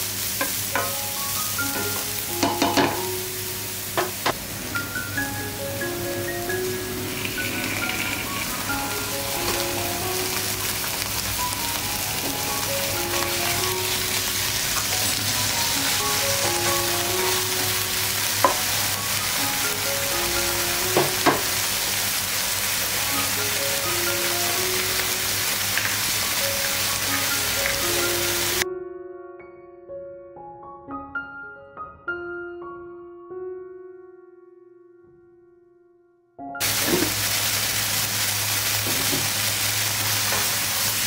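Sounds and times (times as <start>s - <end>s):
food sizzling in a frying pan: 0.0s - 28.6s, 36.6s - 41.0s
utensil knocking on pan: 0.4s - 1.0s, 1.8s - 3.1s, 4.0s - 4.4s, 18.4s - 18.7s, 20.9s - 21.5s.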